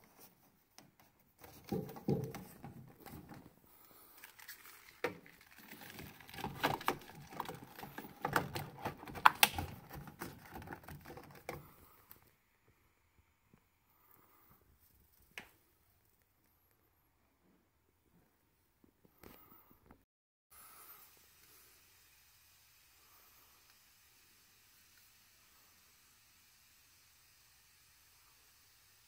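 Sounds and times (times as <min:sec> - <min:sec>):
plastic plugs rustling and clicking: 0:00.7 - 0:12.2.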